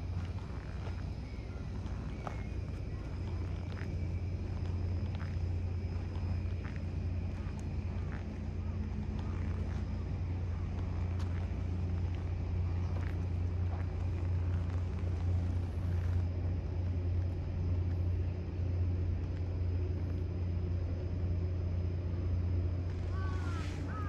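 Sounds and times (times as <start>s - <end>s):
low engine rumble: 0.0s - 24.0s
faint ticks: 0.1s - 18.1s.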